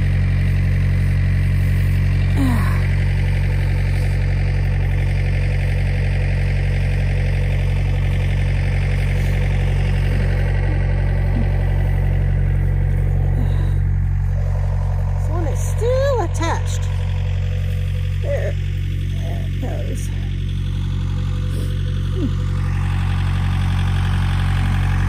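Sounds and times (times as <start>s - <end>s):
tractor engine idling: 0.0s - 25.0s.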